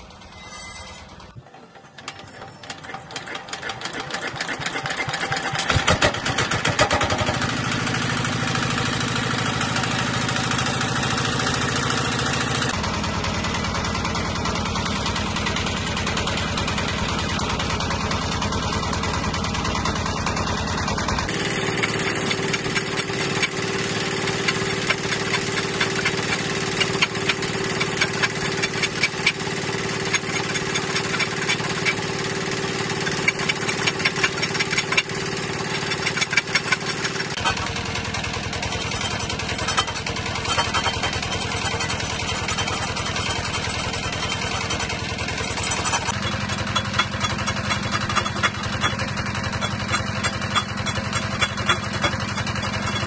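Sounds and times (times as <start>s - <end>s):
diesel engine knocking: 2.8s - 53.0s
lathe humming: 21.3s - 37.4s.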